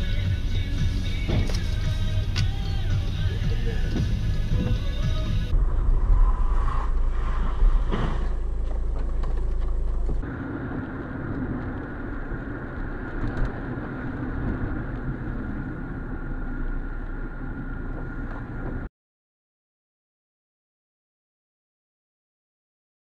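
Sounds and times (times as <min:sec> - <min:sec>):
car engine and road noise: 0:00.0 - 0:18.9
heavy low rumble: 0:00.0 - 0:18.9.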